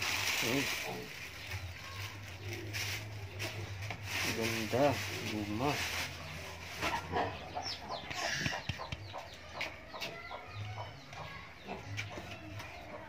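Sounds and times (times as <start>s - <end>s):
chickens clucking: 0.3s - 13.0s.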